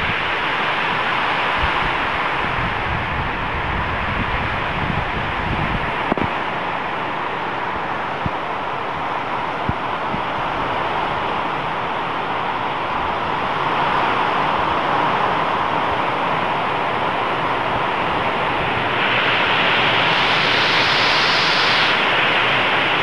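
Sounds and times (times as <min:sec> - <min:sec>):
gusting wind: 0:00.0 - 0:23.0
heavy rain pouring: 0:10.8 - 0:23.0.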